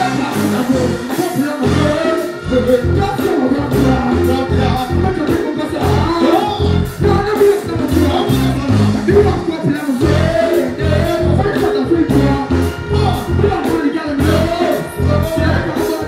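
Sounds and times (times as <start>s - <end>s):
dancehall beat with heavy bass: 0.0s - 16.0s
person chanting and singing into microphone: 0.0s - 16.0s.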